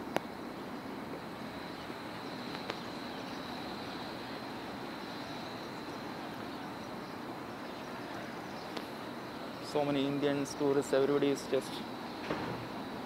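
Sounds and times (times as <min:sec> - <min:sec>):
faint high whine: 0:00.0 - 0:13.0
outdoor background hiss and hum: 0:00.0 - 0:13.0.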